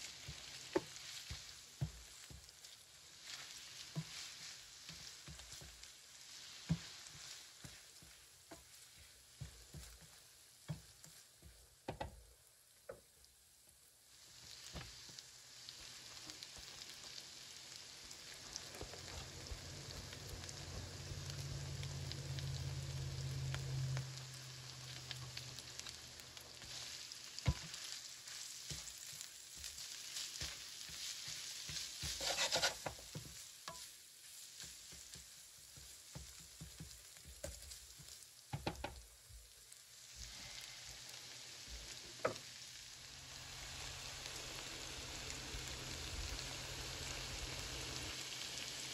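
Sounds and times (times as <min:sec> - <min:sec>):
food sizzling in frying pan: 0:00.0 - 0:48.9
utensil scraping and knocking pan: 0:30.4 - 0:33.8.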